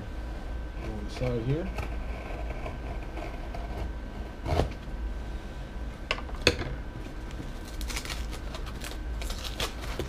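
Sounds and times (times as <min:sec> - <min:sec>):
low room hum: 0:00.0 - 0:10.0
cardboard cracking: 0:07.6 - 0:10.0.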